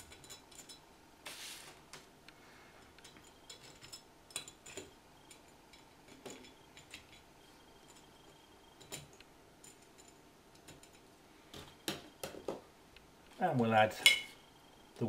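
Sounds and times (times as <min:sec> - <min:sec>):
small metal parts clinking: 0:03.0 - 0:11.0.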